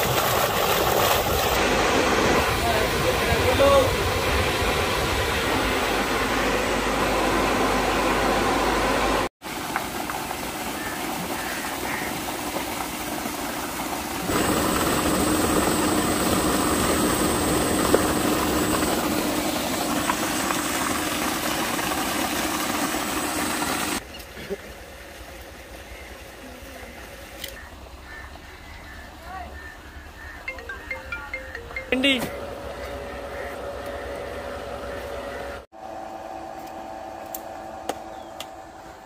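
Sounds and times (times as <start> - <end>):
electric pump motors running: 0.0 - 24.0, 32.2 - 39.0.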